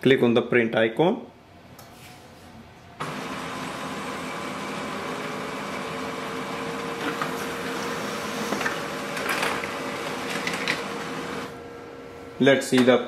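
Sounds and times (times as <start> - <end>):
laser printer humming: 3.0 - 12.4
paper feed clicks and rattles: 7.0 - 11.5.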